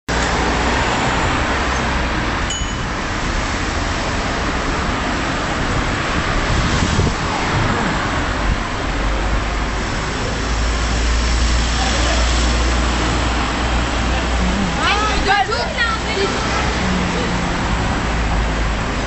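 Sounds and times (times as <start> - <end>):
car traffic: 0.1 - 19.0
wind rushing over microphone: 0.2 - 11.6
short high tone: 2.5 - 3.0.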